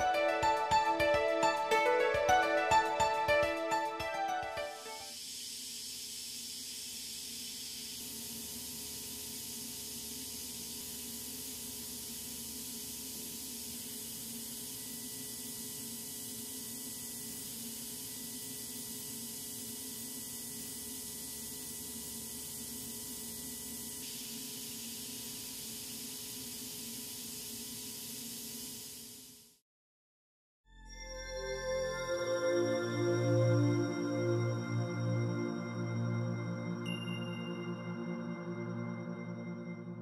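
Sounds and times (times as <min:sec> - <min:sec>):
faint high steady tone: 0:32.1 - 0:40.0.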